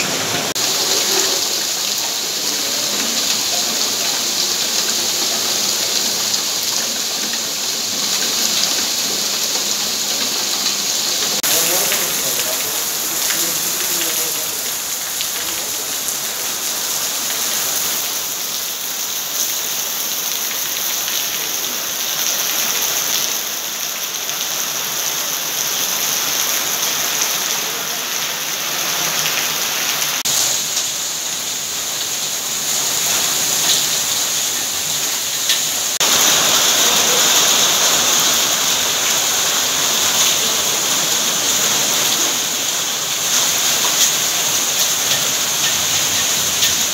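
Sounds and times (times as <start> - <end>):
heavy rain on paving: 0.0 - 46.9.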